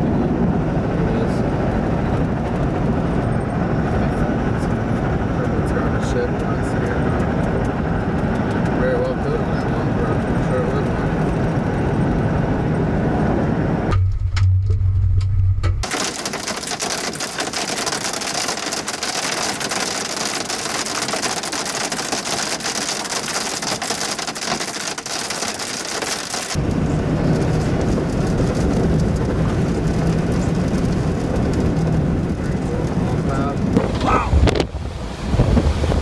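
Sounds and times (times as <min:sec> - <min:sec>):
engine and road noise: 0:00.0 - 0:36.0
heavy rain on a vehicle: 0:15.8 - 0:36.0.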